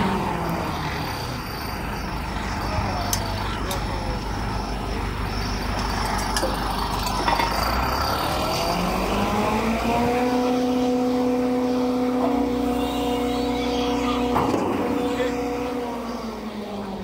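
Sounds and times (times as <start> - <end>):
concrete mixer pump running: 0.0 - 17.0
machine whine rising in pitch: 4.5 - 17.0.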